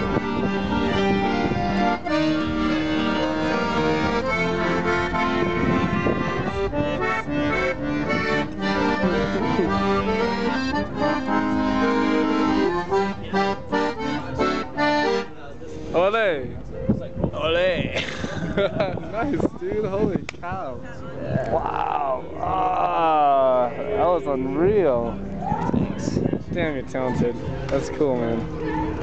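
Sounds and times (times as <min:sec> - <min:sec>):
accordion playing a tune: 0:00.0 - 0:16.1.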